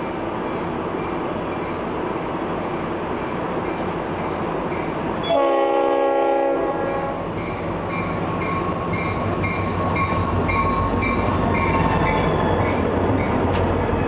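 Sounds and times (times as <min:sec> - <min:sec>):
diesel locomotive rumble: 0:00.0 - 0:14.0
locomotive horn blast: 0:05.2 - 0:07.2
locomotive bell ringing: 0:07.4 - 0:13.4.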